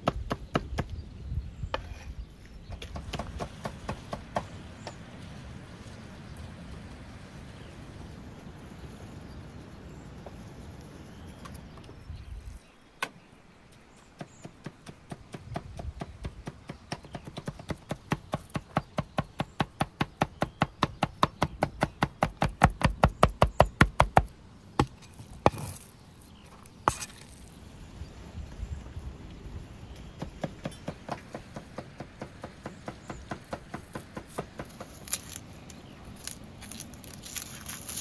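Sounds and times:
cleaver chopping on wooden block: 0.0s - 0.9s, 2.7s - 5.0s, 14.2s - 25.8s.

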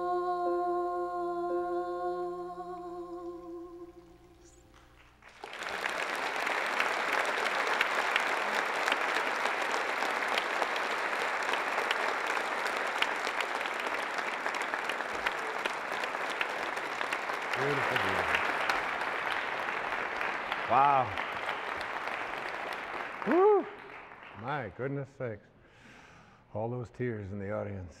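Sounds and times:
audience applauding: 5.0s - 24.8s.

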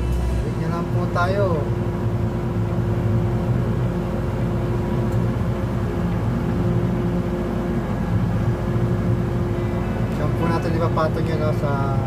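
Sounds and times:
heavy machinery engine running: 0.0s - 12.0s
steady whine: 0.0s - 12.0s.

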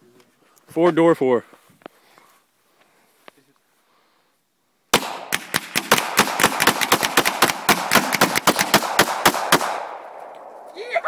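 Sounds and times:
pistols firing rapidly: 4.9s - 10.0s.

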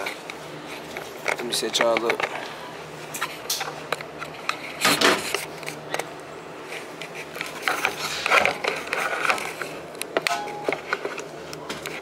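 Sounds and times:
phone handling noise: 10.3s - 11.1s.

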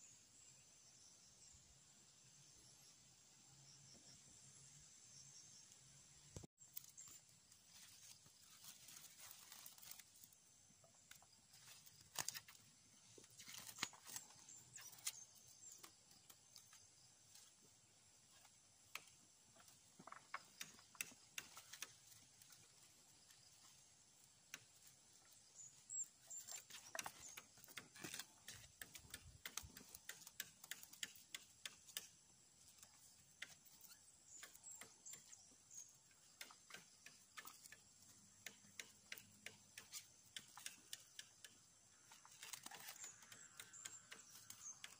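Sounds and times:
plastic twine clicks and rustles: 6.6s - 10.4s, 11.0s - 16.8s, 26.2s - 32.1s, 36.2s - 44.9s.

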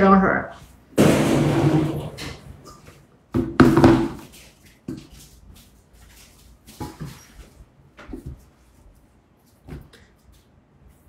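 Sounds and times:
knocks and thumps: 1.0s - 2.5s, 3.3s - 4.2s.

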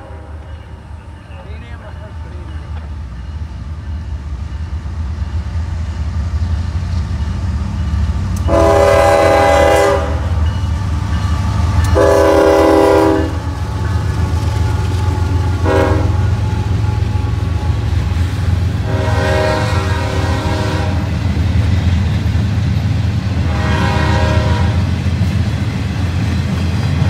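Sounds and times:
diesel locomotive engine rumble: 0.0s - 27.0s
multi-chime train horn blasts: 8.4s - 10.4s, 11.8s - 13.5s, 15.6s - 17.9s, 18.8s - 21.1s, 23.4s - 24.9s.

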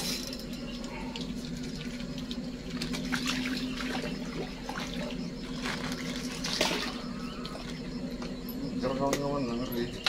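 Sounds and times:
steady low hum: 0.0s - 10.0s
fish splashing at water surface: 1.2s - 7.7s.

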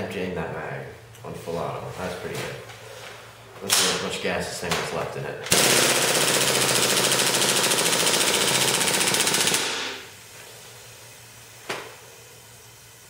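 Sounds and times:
airsoft gun firing full-auto: 5.5s - 10.1s.

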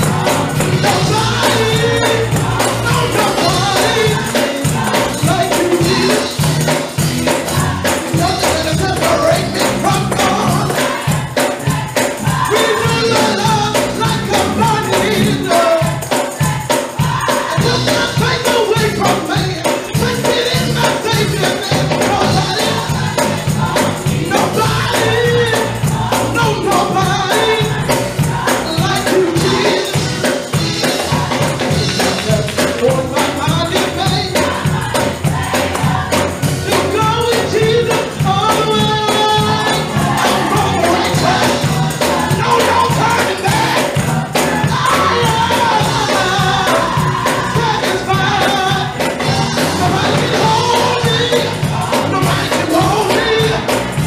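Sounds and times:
choir singing gospel: 0.0s - 54.0s
organ: 0.0s - 54.0s
tambourine: 0.0s - 54.0s
hand clapping: 31.8s - 33.6s.

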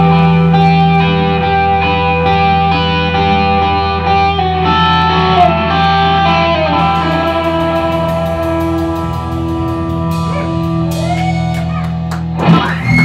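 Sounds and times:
bass guitar: 0.0s - 13.0s
electric guitars: 0.0s - 13.0s
cymbal ticking: 6.7s - 11.0s.

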